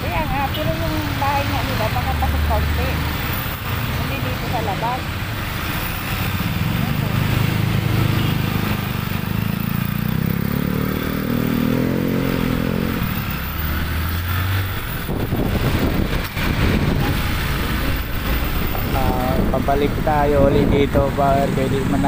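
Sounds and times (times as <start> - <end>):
wind and road noise rushing: 0.0 - 22.0
motorcycle engine accelerating: 5.2 - 22.0.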